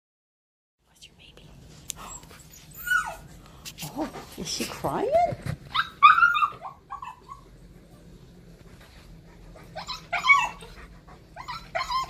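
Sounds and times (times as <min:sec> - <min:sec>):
puppy whining: 0:02.0 - 0:04.2, 0:05.1 - 0:07.7, 0:09.4 - 0:12.0.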